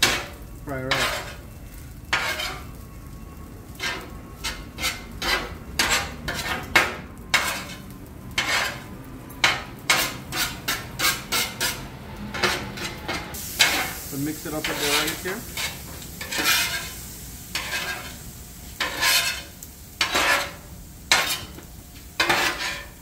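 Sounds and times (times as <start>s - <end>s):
metal spatula scraping on griddle: 0.0s - 2.8s, 3.7s - 23.0s
light sizzle of frying: 0.0s - 23.0s.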